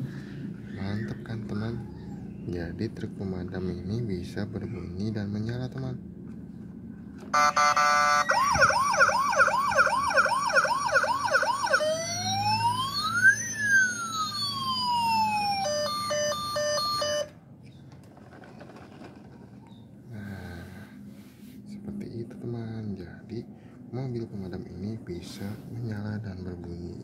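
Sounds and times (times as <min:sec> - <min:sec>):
toy electronic siren: 0:07.3 - 0:17.4.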